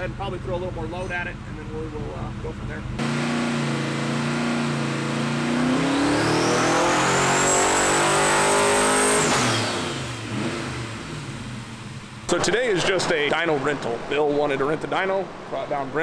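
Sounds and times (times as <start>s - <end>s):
v eight engine revving on dyno: 3.0s - 12.0s.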